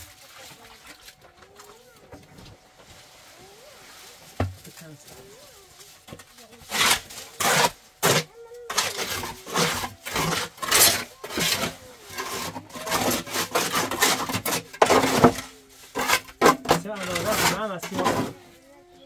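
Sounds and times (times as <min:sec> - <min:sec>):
rough scraping strokes: 0:03.0 - 0:18.6.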